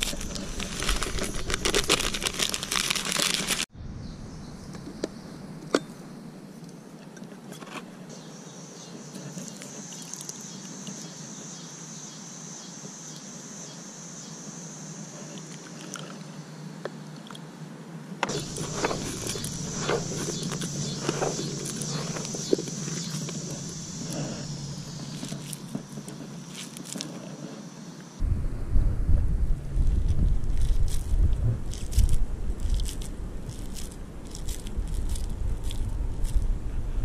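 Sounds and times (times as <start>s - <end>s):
handling noise: 0.0s - 3.7s, 18.2s - 27.7s, 29.8s - 36.6s
paper packet crinkling and tearing: 0.0s - 3.7s, 18.3s - 27.2s, 29.9s - 36.4s
high-pitched hiss: 8.1s - 16.7s, 18.2s - 28.4s.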